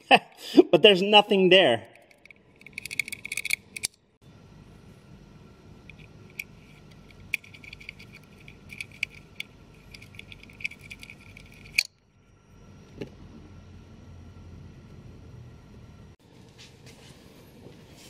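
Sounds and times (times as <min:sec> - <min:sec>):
metal probe ticking and scraping: 0:01.9 - 0:04.0, 0:05.8 - 0:12.0.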